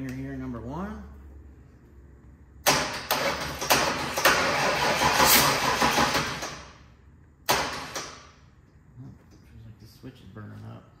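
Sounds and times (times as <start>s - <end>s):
engine cranked by starter: 2.7s - 6.8s, 7.5s - 8.3s.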